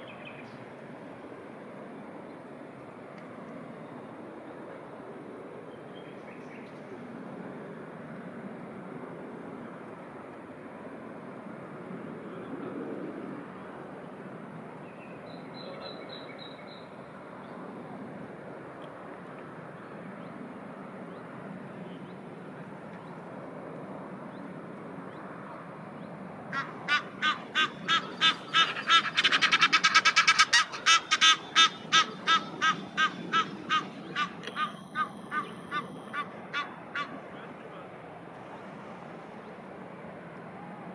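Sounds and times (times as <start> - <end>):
goose honking: 26.6 - 37.2.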